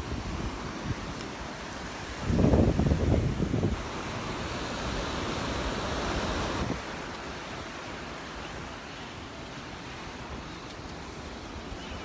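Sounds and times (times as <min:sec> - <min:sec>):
wind buffeting microphone: 0:00.0 - 0:09.4
surf breaking on shore: 0:00.0 - 0:12.0.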